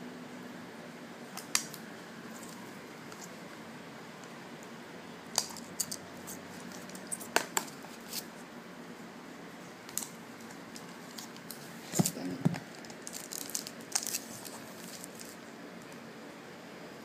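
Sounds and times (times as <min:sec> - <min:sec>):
plastic wrapping crinkling and clicking: 0:09.9 - 0:16.0.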